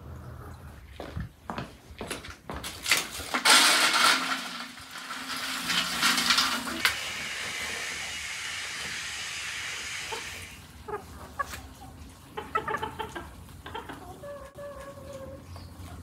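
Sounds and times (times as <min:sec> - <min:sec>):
chickens clucking: 0:08.8 - 0:16.0.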